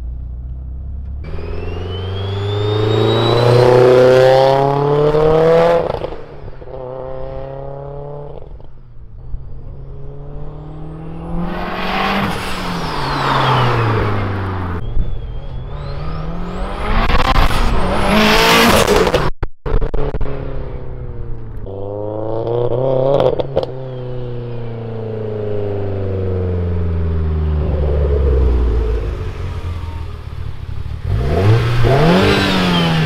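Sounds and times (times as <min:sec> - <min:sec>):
car engine accelerating: 0:00.0 - 0:33.0
turbo whistle: 0:01.3 - 0:04.0, 0:14.8 - 0:17.1.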